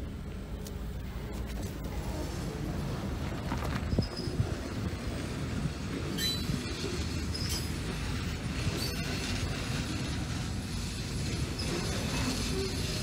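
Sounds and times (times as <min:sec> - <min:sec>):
train wheels rumbling: 0:02.0 - 0:13.0
wheel squeals: 0:03.8 - 0:04.8, 0:06.0 - 0:09.6, 0:11.2 - 0:13.0.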